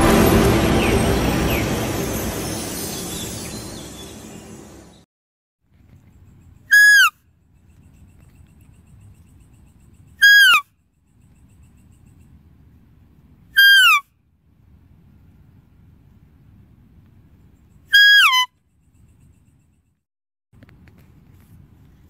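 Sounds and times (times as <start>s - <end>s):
whistle-like deer call: 6.7s - 7.2s, 10.2s - 10.7s, 13.6s - 14.0s, 17.9s - 18.5s.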